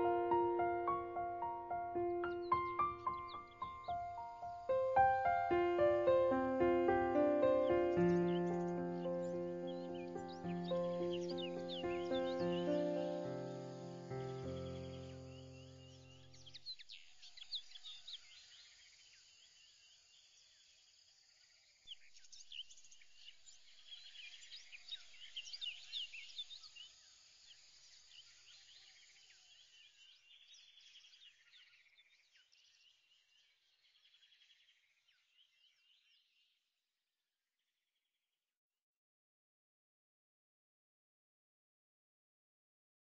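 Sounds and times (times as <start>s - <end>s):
birds chirping: 0.0s - 18.4s
light background hiss: 0.0s - 21.1s.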